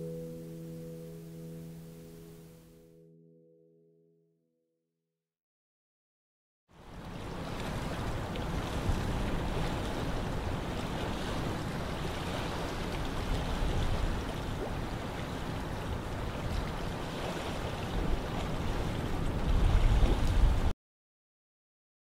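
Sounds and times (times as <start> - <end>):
strong wind buffeting microphone: 7.7 - 20.7.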